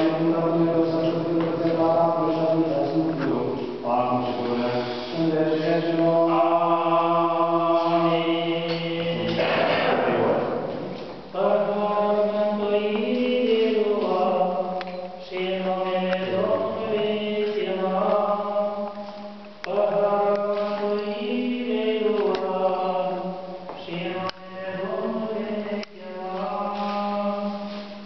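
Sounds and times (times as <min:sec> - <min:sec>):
choir chanting long held notes: 0:15.2 - 0:18.8.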